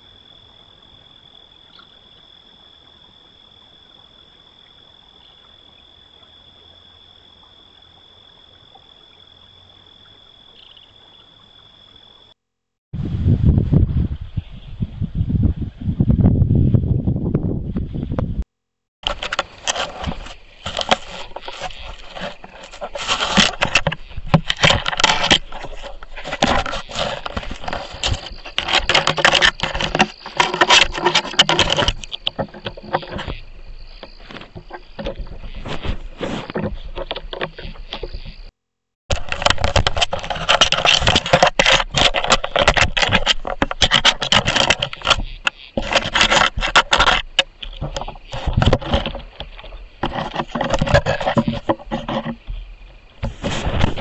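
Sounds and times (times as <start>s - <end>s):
animal rubbing against camera: 19.0s - 38.5s, 39.1s - 52.6s, 53.2s - 54.0s.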